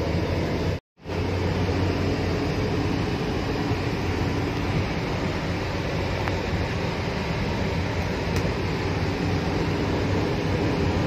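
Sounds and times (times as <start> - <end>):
car cabin road rumble: 0.0 - 11.0
low hum: 0.0 - 11.0.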